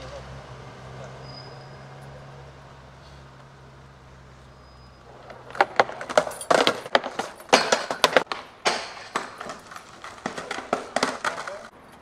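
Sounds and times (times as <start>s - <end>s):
skateboard wheels rolling: 3.4s - 12.0s
skateboard clacking on pavement: 5.0s - 12.0s.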